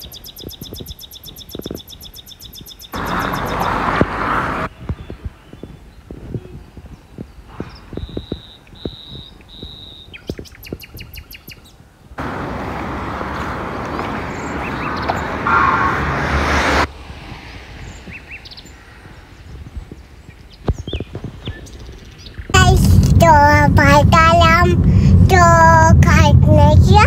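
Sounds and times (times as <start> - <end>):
loud rushing noise: 3.0 - 4.8, 12.2 - 19.2, 22.6 - 27.0
faint bird chirps: 4.8 - 11.8
bird whistled notes: 7.7 - 11.5.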